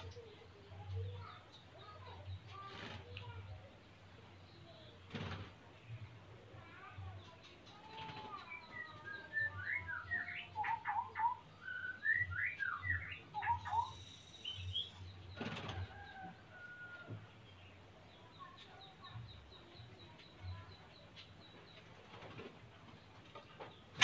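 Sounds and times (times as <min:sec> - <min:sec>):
bird singing whistled phrases: 0:08.6 - 0:15.0.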